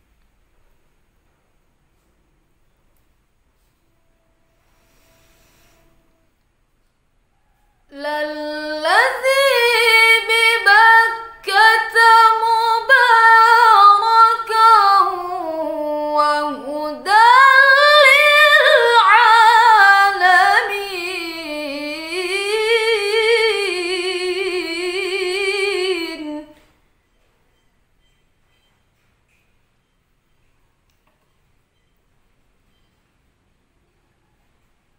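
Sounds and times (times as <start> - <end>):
woman reciting melodically: 7.9 - 26.8.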